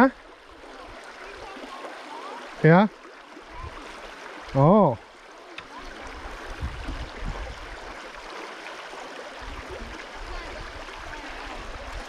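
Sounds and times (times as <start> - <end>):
flowing creek water: 0.0 - 12.0.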